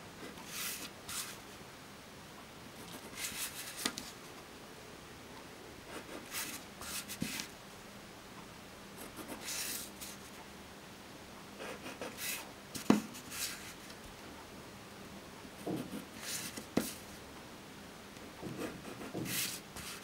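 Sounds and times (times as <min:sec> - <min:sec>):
faint steady hum: 0:00.0 - 0:20.0
ballpoint pen scratching on paper: 0:18.5 - 0:20.0.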